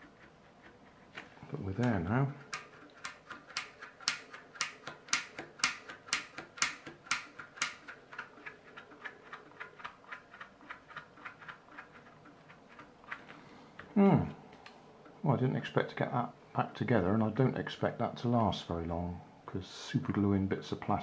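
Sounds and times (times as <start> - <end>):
sharp ticking clicks: 2.5 - 12.0.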